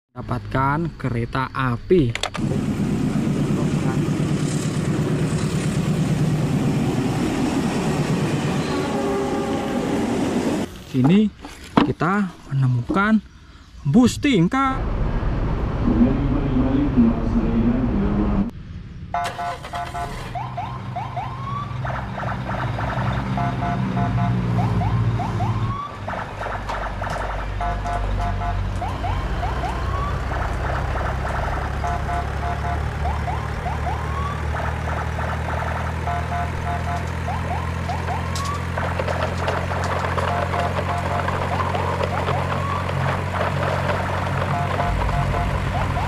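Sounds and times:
low hum: 0:14.1 - 0:20.4
electronic siren beeps and whoops: 0:19.2 - 0:22.3, 0:23.1 - 0:26.0, 0:27.6 - 0:30.9, 0:31.7 - 0:39.0, 0:40.2 - 0:43.2, 0:44.2 - 0:46.0.

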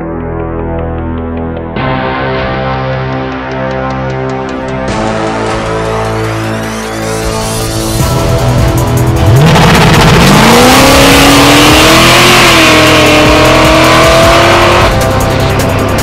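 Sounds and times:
exhaust and tyre noise: 0:04.9 - 0:16.0
car engine revving: 0:08.2 - 0:16.0.

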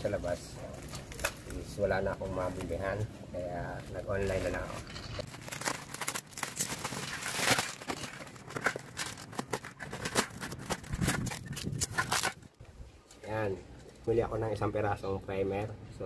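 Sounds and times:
plastic wrapping crinkling and tearing: 0:00.2 - 0:03.0, 0:03.9 - 0:12.6.

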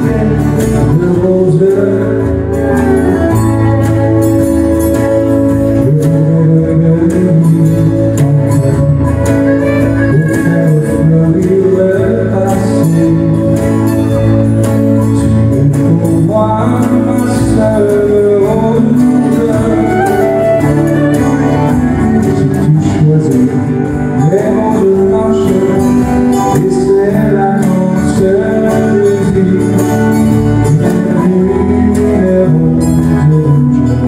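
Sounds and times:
acoustic guitars strummed: 0:00.0 - 0:34.0.

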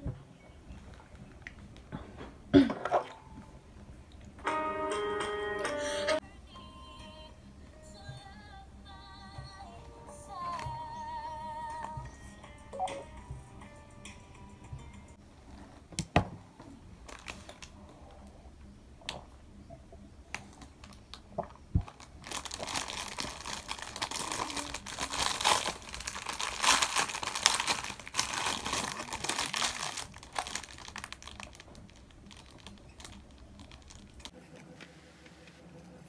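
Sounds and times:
plastic bag crinkling: 0:17.0 - 0:17.8, 0:20.5 - 0:34.3.

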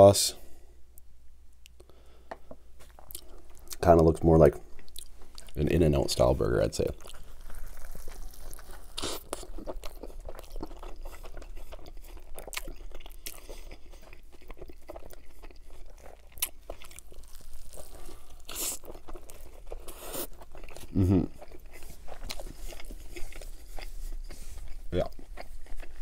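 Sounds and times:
biting and chewing burger: 0:02.8 - 0:03.8, 0:06.9 - 0:26.0.

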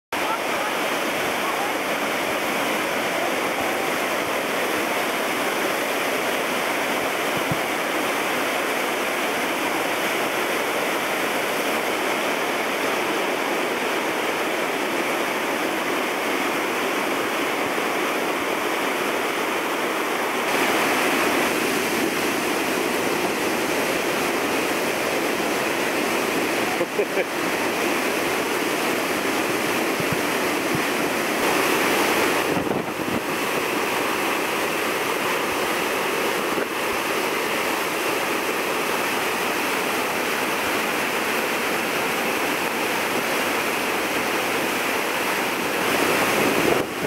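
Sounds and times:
waterfall rushing: 0:00.1 - 0:47.0.

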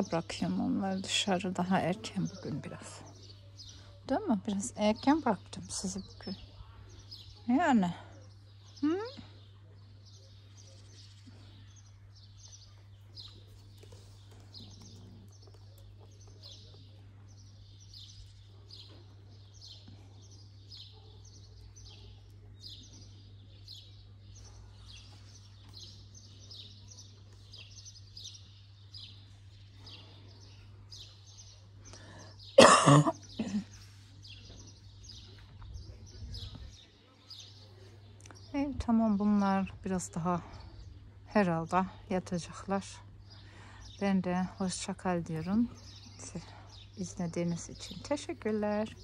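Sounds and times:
person coughing: 0:32.6 - 0:33.6.

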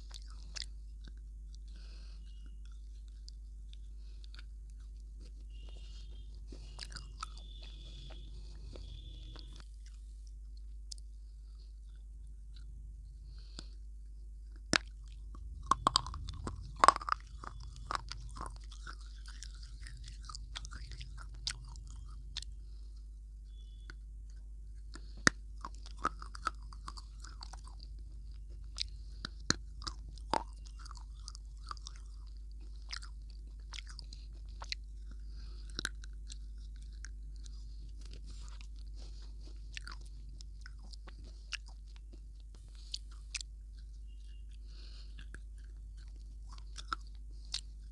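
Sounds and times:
crunching a brittle snack: 0:00.0 - 0:11.0, 0:14.4 - 0:22.8, 0:23.5 - 0:47.9
chewing: 0:00.0 - 0:47.9.

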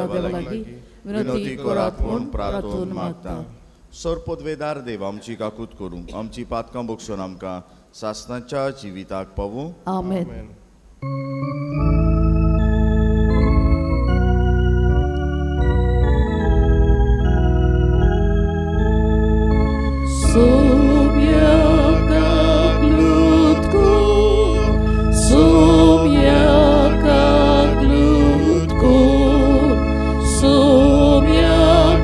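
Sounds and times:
organ playing held chords: 0:00.0 - 0:00.6, 0:11.0 - 0:32.0
singing with vibrato: 0:00.0 - 0:03.7, 0:20.1 - 0:32.0.

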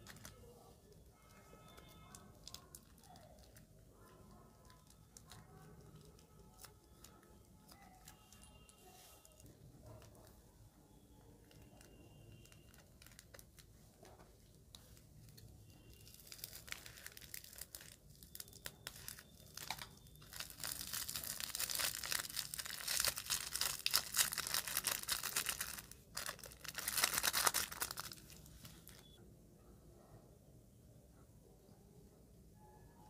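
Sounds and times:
plastic piping bag crinkling: 0:00.0 - 0:10.3, 0:11.2 - 0:29.2.

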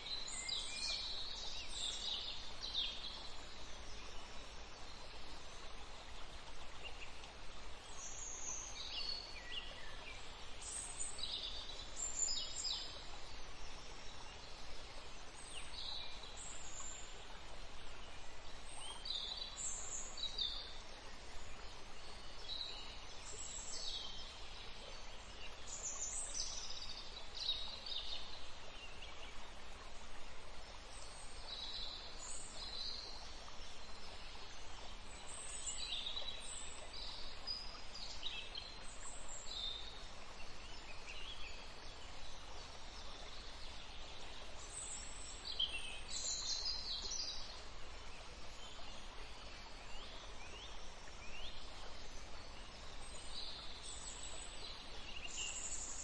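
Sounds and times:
steady background hiss: 0:00.0 - 0:56.0.

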